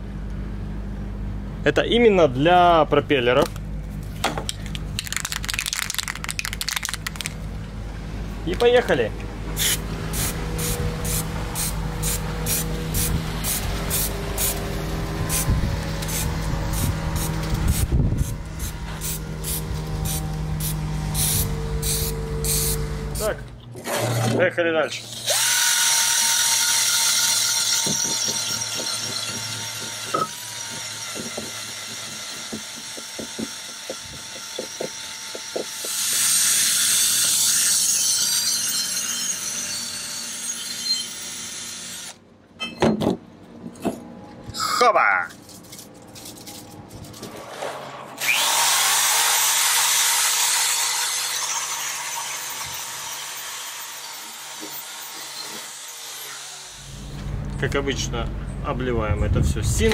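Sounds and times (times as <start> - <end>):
drill high whine: 9.6 - 23.4, 25.0 - 42.2, 48.2 - 57.2.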